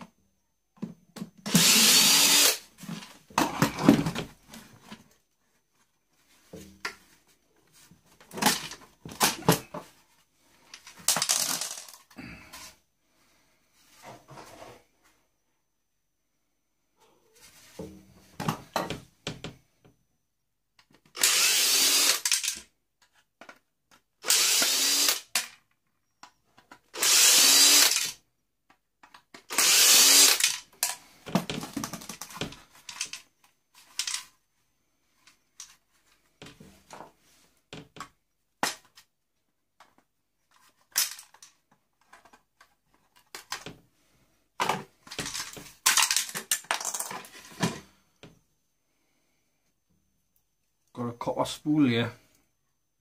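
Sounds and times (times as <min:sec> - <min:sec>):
power drill-driver whirring: 0:01.4 - 0:02.6, 0:21.2 - 0:22.6, 0:24.2 - 0:25.5, 0:26.9 - 0:28.2, 0:29.5 - 0:30.7
small plastic parts clattering: 0:10.7 - 0:12.2, 0:22.0 - 0:24.0, 0:30.2 - 0:34.4, 0:39.8 - 0:43.8, 0:44.6 - 0:47.9.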